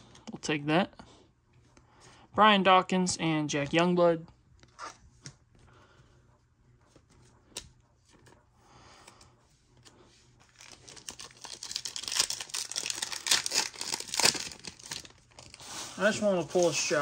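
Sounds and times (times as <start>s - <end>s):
card pack wrapper tearing: 10.4s - 15.6s.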